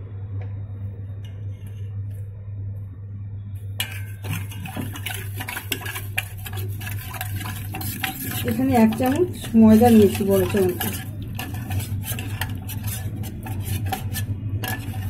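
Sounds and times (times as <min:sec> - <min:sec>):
steady low hum: 0:00.0 - 0:15.0
spoon clinking in metal pot: 0:03.8 - 0:15.0
spoon stirring and scraping pot: 0:03.8 - 0:15.0.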